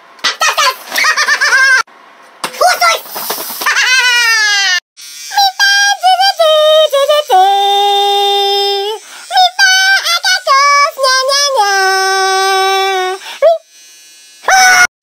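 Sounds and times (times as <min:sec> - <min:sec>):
high-pitched synthetic singing voice: 0:05.3 - 0:13.6.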